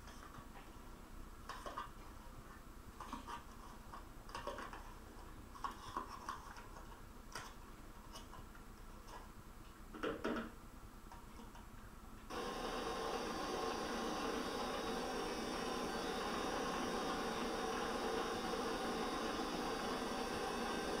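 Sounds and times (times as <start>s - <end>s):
hand mixer humming: 12.3s - 21.0s.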